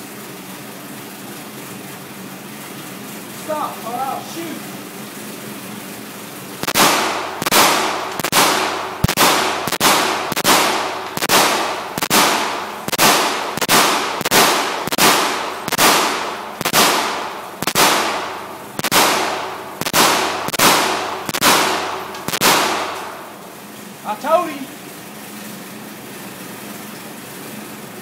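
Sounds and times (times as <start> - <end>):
pistol shots with ringing echo: 6.6 - 23.4.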